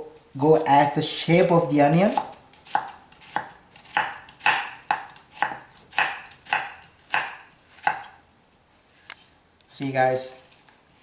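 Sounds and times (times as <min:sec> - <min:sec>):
knife slicing onion on board: 0:01.3 - 0:08.2.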